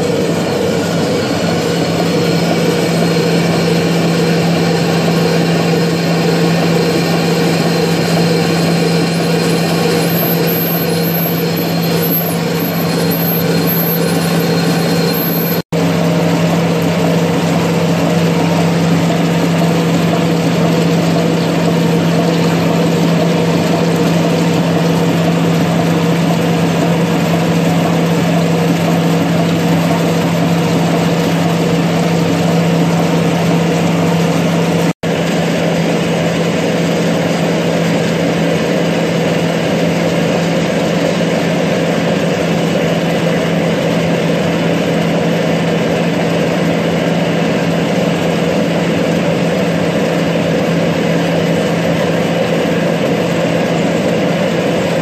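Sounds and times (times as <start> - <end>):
lathe humming: 0.0 - 54.9.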